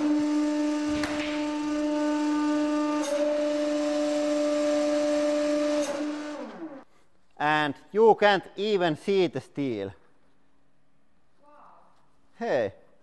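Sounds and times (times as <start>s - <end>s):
hydraulic pump humming: 0.0s - 6.9s.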